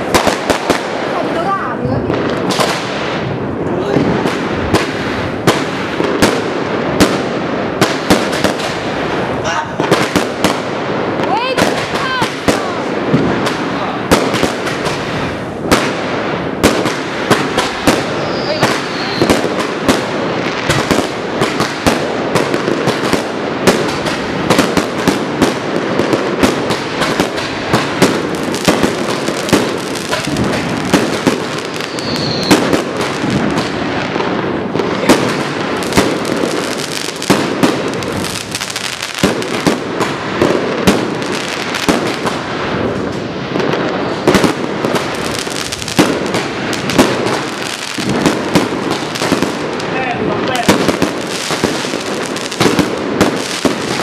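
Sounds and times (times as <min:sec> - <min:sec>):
fireworks banging: 0:00.0 - 0:54.0
firework whistle: 0:17.6 - 0:19.6, 0:31.6 - 0:32.9.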